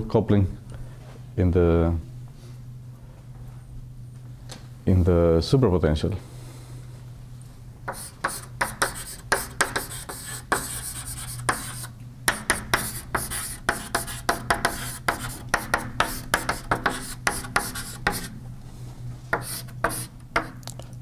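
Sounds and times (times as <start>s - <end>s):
chalk writing on a blackboard: 7.9s - 18.4s, 19.3s - 20.6s.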